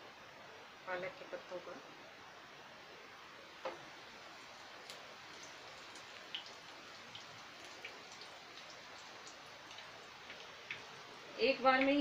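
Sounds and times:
leaves frying in hot oil: 3.4s - 12.0s.

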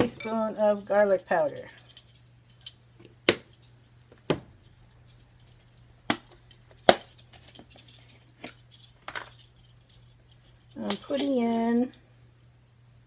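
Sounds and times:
metal spoons and jars clinking: 4.6s - 12.0s.

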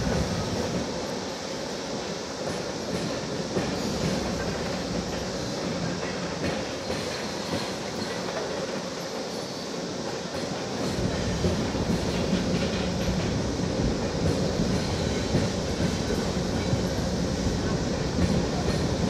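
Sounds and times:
deep train rumble: 0.0s - 8.8s
train wheels clacking on rails: 0.0s - 19.0s.

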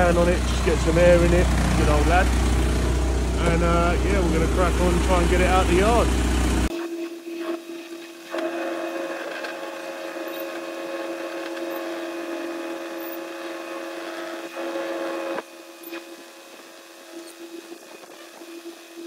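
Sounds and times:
truck engine humming: 0.0s - 6.7s.

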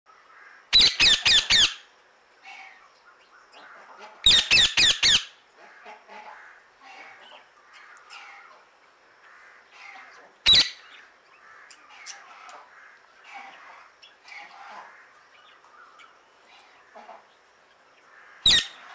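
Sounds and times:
parakeet screeching calls: 0.8s - 1.9s, 4.2s - 5.4s, 9.8s - 11.0s, 18.4s - 18.9s
parakeet soft chirps: 10.5s - 10.9s.

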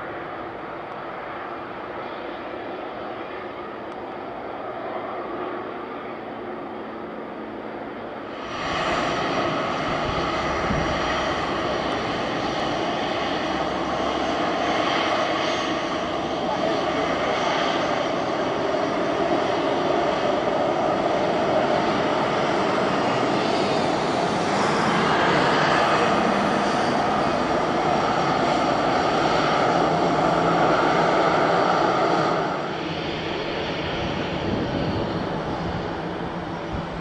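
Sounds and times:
jet engine roar with whine: 0.0s - 37.0s.

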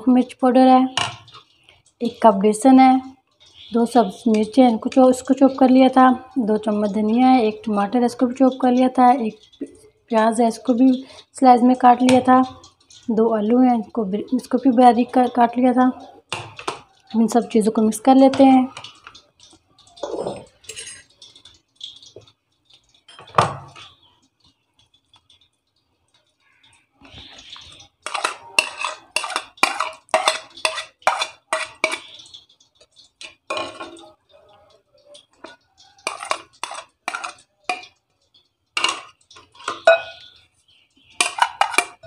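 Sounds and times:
dishes clinking and clattering: 1.0s - 1.9s, 15.1s - 25.5s, 27.0s - 42.0s
plate scraping glass bowl: 20.0s - 21.1s, 28.0s - 32.4s, 35.4s - 38.0s, 38.8s - 40.2s, 41.2s - 42.0s.

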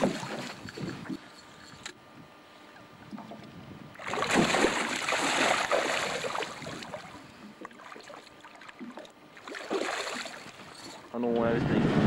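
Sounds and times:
fish thrashing and splashing water: 0.0s - 1.3s, 4.0s - 10.9s.

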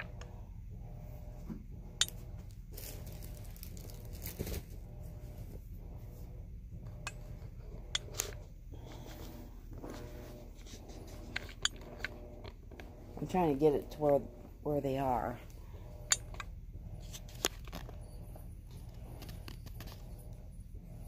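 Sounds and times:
kittens playing with taps and rustling: 1.5s - 4.8s.

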